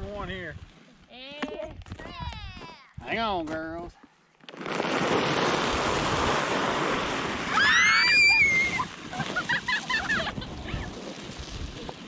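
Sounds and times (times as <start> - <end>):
sled scraping over icy snow: 4.5 - 12.0
child squealing: 7.5 - 8.9.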